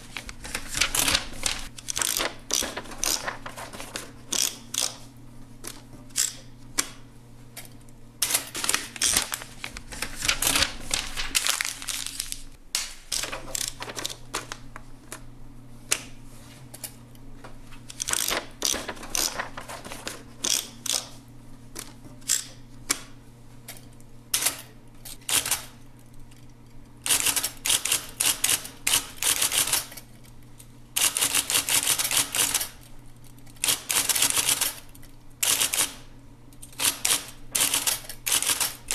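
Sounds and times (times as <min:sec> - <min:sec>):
steady low hum: 0:00.0 - 0:38.9
typewriter keystrokes: 0:00.2 - 0:05.0, 0:08.2 - 0:11.4, 0:17.9 - 0:21.1, 0:24.4 - 0:25.7, 0:27.0 - 0:30.0, 0:31.0 - 0:32.8, 0:33.6 - 0:36.0, 0:36.6 - 0:38.9.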